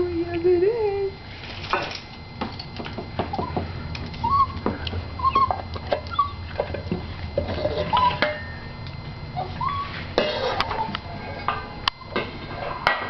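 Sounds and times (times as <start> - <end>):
dog whining: 3.3 - 6.5, 7.6 - 8.2, 9.4 - 11.6.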